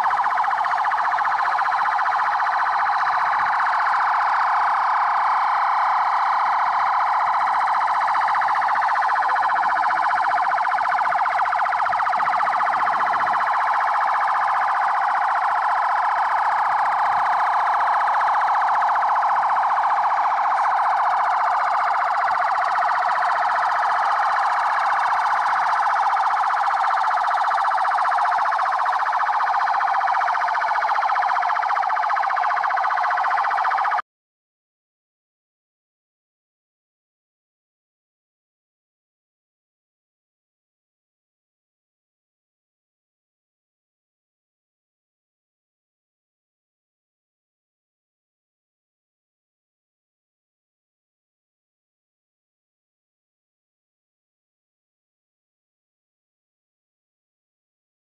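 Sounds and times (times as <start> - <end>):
police sirens wailing: 0.0 - 34.0.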